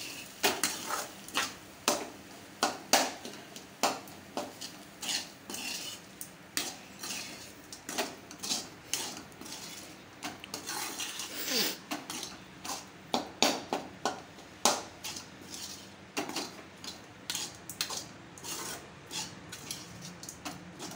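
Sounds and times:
spoon scraping metal pan: 0:00.0 - 0:01.6, 0:04.4 - 0:12.9, 0:15.0 - 0:20.9.

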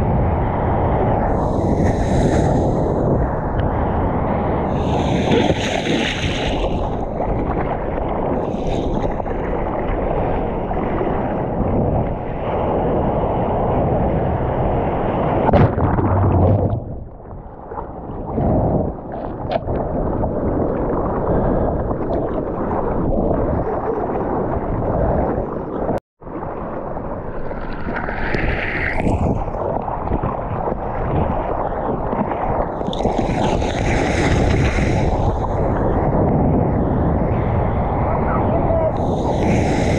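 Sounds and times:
wind buffeting microphone: 0:00.0 - 0:39.9
water rushing and splashing: 0:04.6 - 0:11.6, 0:15.2 - 0:25.8.

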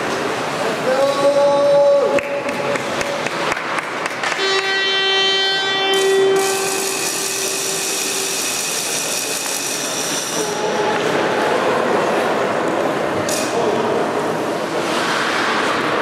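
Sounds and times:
ice rink hubbub: 0:00.0 - 0:16.0
horn blowing long note: 0:04.2 - 0:08.7.

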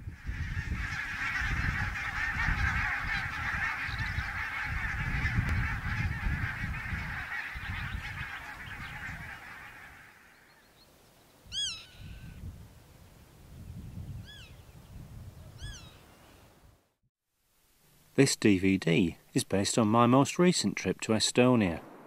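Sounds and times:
geese honking in flight: 0:00.0 - 0:10.6.

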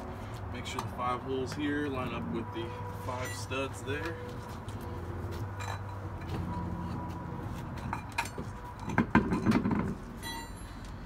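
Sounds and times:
metallic clinks and scrapes: 0:04.6 - 0:11.0
wheel rim clunking onto hub: 0:07.8 - 0:10.8.

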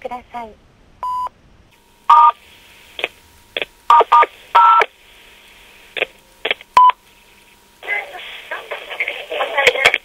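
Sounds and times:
faint telephone line hum: 0:00.0 - 0:10.0
answering machine beep: 0:01.0 - 0:01.3, 0:02.1 - 0:02.4.

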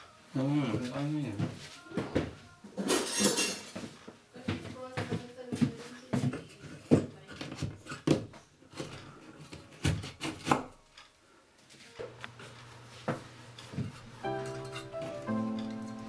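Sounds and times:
background music: 0:14.2 - 0:16.0.

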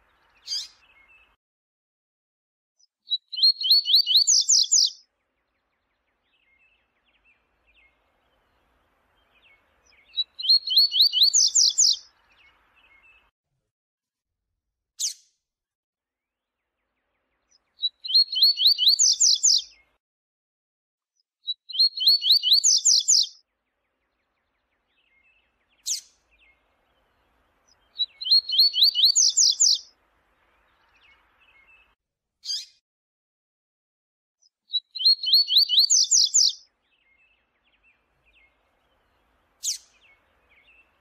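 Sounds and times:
bird singing: 0:00.0 - 0:01.4, 0:03.1 - 0:13.3, 0:17.4 - 0:20.0, 0:21.4 - 0:32.6, 0:34.7 - 0:41.0.

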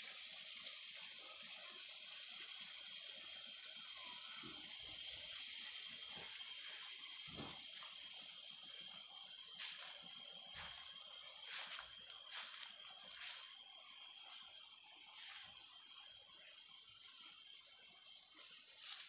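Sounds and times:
shrill insect chorus: 0:00.1 - 0:19.0
footsteps brushing through undergrowth: 0:09.6 - 0:13.6.

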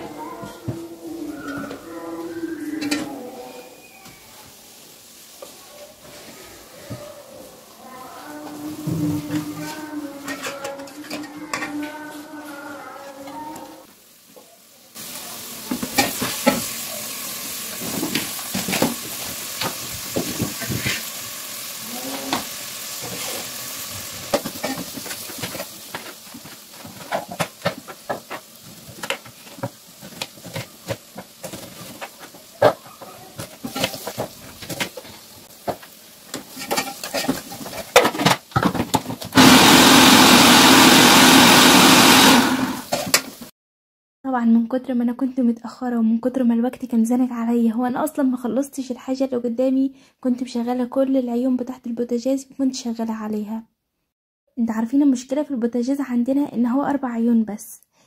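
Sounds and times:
food sizzling in a pan: 0:00.0 - 0:43.5
food processor running: 0:39.3 - 0:42.9.

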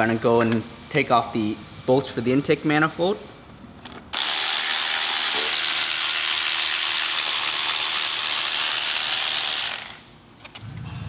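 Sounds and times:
power ratchet hissing: 0:04.1 - 0:10.1.

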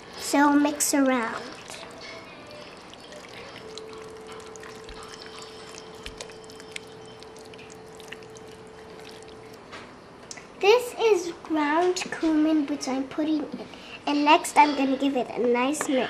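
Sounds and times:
faint steady hum: 0:00.0 - 0:16.0
wooden spoon stirring chili in pot: 0:00.1 - 0:09.7.

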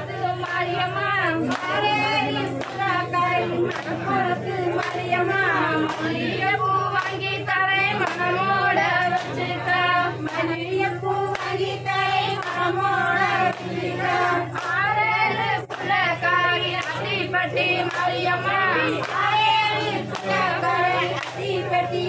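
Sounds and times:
steady low hum: 0:00.0 - 0:22.0
women singing together: 0:00.0 - 0:22.0
sharp hand claps: 0:01.4 - 0:01.8, 0:02.5 - 0:02.9, 0:03.7 - 0:04.0, 0:04.8 - 0:05.1, 0:05.8 - 0:06.2, 0:07.0 - 0:07.2, 0:08.0 - 0:08.3, 0:11.3 - 0:11.6, 0:12.4 - 0:12.6, 0:13.5 - 0:13.7, 0:14.5 - 0:14.9, 0:15.7 - 0:16.0, 0:16.8 - 0:17.0, 0:17.8 - 0:18.2, 0:18.9 - 0:19.3, 0:21.2 - 0:21.5.

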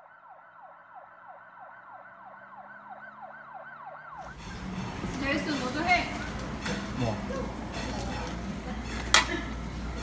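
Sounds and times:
electronic siren-like whistle: 0:00.0 - 0:04.4.

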